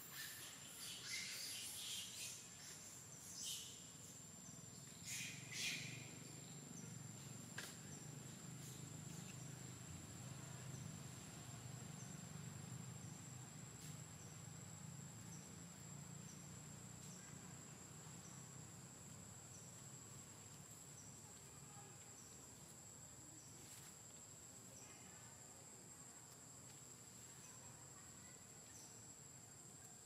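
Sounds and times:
short high insect chirp: 0.0s - 18.9s
insects droning: 0.0s - 30.0s.

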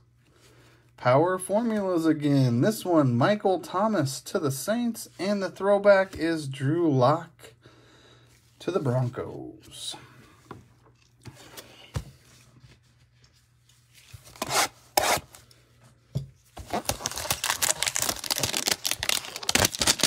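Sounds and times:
cardboard crackling and tearing: 16.6s - 20.0s.

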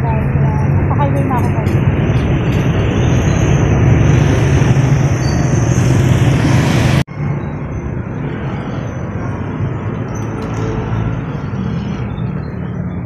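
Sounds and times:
wind on microphone: 0.0s - 7.1s
motorcycle traffic: 0.0s - 13.0s.

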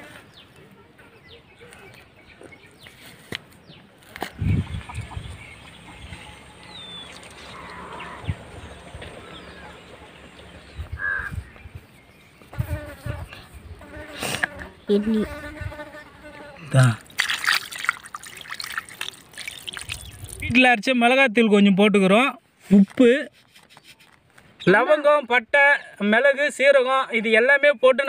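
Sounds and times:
rustles: 2.7s - 4.4s, 22.5s - 24.7s
insects buzzing: 12.4s - 20.5s.

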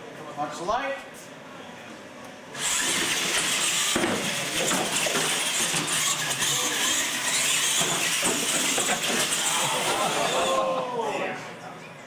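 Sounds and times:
radio-controlled trucks racing: 2.6s - 10.7s.

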